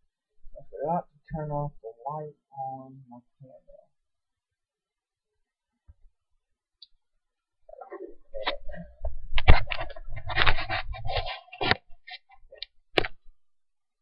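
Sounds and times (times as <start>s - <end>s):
handling noise rubbing and scraping: 7.9s - 12.6s.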